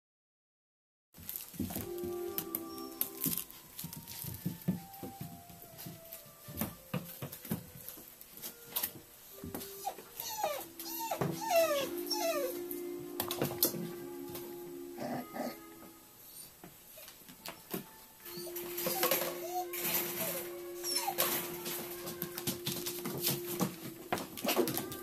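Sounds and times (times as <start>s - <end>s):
puppy whimpering: 9.6s - 13.8s, 14.9s - 17.1s, 18.2s - 25.0s
puppy scratching plastic bed: 18.3s - 25.0s.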